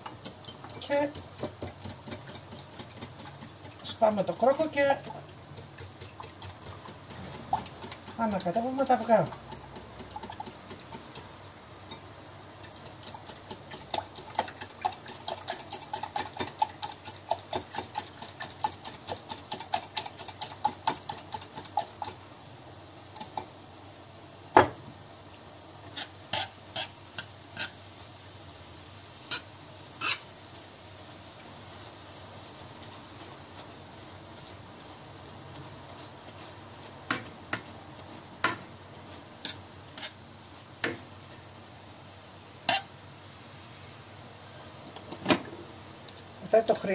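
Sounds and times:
whisk beating eggs in glass bowl: 0.1 - 11.4, 12.6 - 22.2.

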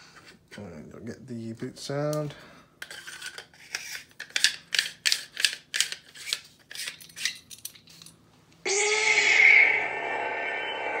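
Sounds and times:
electronic power-up sound: 8.7 - 11.0.

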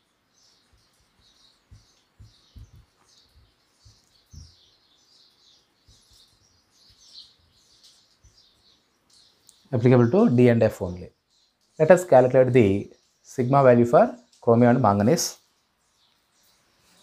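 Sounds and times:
soft low thumps: 1.6 - 4.8.

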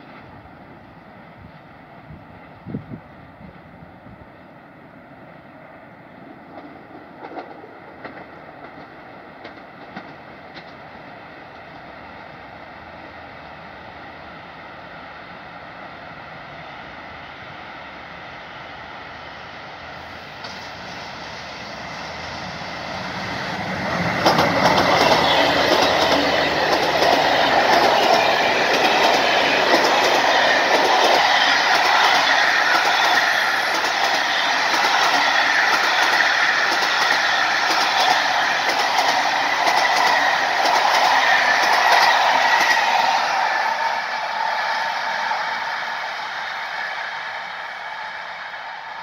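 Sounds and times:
train passing at speed: 0.0 - 49.0
wheels clicking over rail joints: 24.0 - 43.0.

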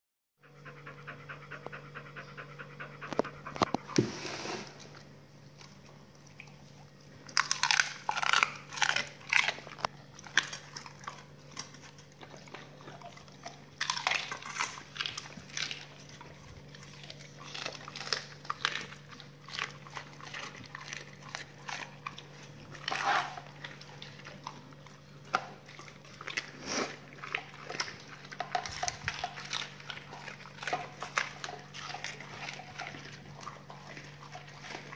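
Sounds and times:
dogs panting: 0.4 - 4.1
dogs chewing and crunching: 0.6 - 34.9.

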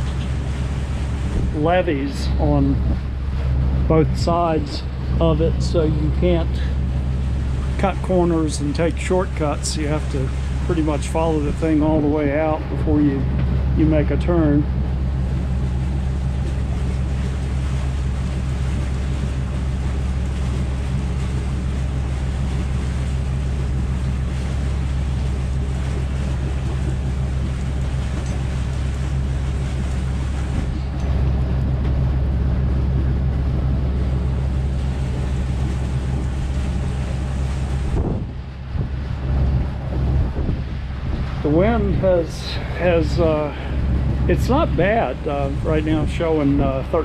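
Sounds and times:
boat engine droning: 0.0 - 47.0
water rushing past hull: 0.0 - 47.0
wind rushing: 35.6 - 42.2.

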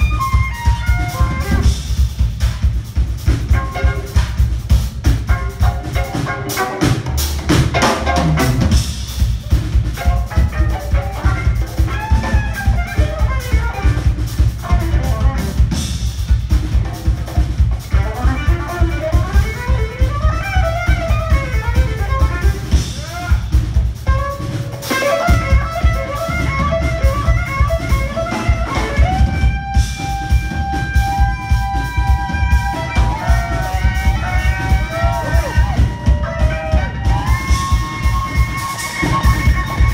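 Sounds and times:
drum kit and bass groove: 0.0 - 39.9
violin solo: 17.8 - 39.9.

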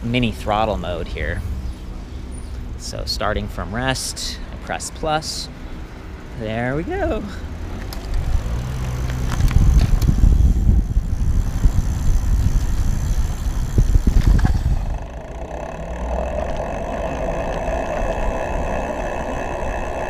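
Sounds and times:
wind and road noise: 0.0 - 20.0
electric motor hum with whine: 5.6 - 20.0.

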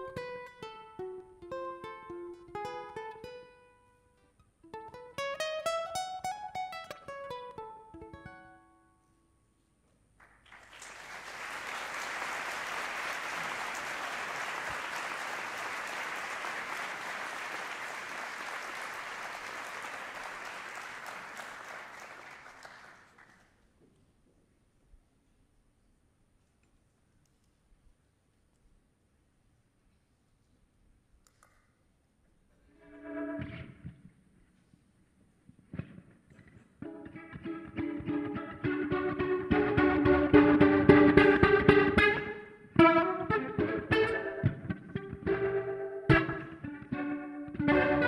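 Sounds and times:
small plucked string instrument: 0.0 - 9.1, 36.8 - 48.0
audience applauding: 10.2 - 23.6.

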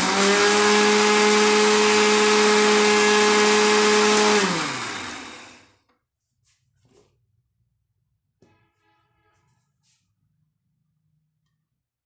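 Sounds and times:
mixer grinder motor running: 0.0 - 5.7.

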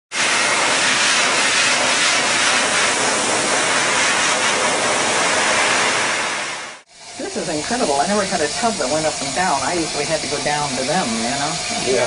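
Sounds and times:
water spraying into a tub: 0.1 - 12.0.

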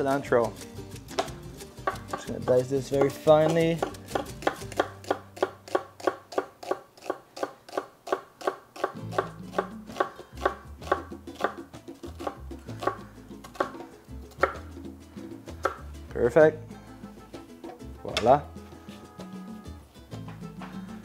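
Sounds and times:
quiet background music: 0.0 - 6.5, 8.8 - 21.0
knife tapping on wooden board: 1.2 - 11.6, 14.4 - 14.6.

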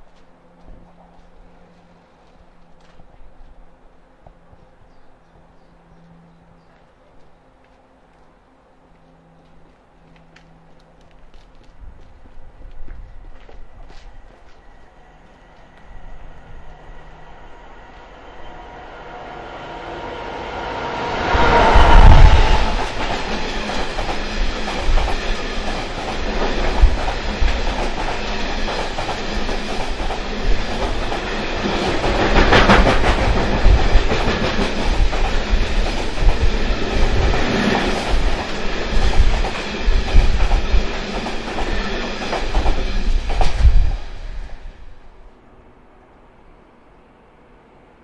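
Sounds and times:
train wheels clattering over rails: 21.8 - 43.8.

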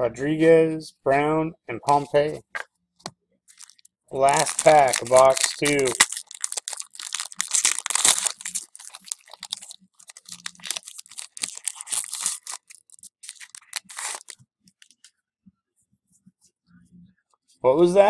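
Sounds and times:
cards being shuffled: 3.5 - 15.0
wrapper tearing and crinkling: 3.5 - 15.0.

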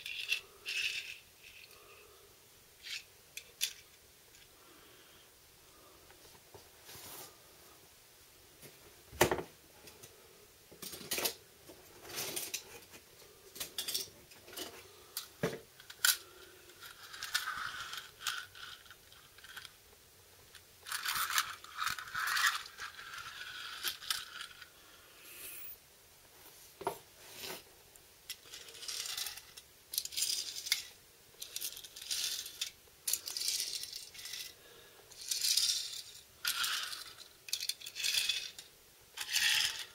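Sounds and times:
toy cars clacking on hard floor: 0.0 - 1.8, 15.2 - 19.8, 20.5 - 24.7, 28.3 - 34.6, 35.2 - 39.9
toy wheels rolling: 0.0 - 2.0, 2.8 - 4.5, 13.7 - 19.8, 20.8 - 24.7, 28.3 - 39.9.

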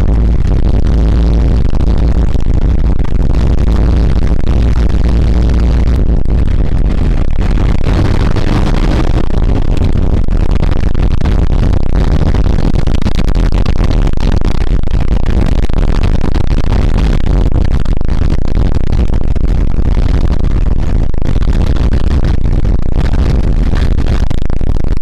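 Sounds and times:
engine and road drone: 0.0 - 14.6.

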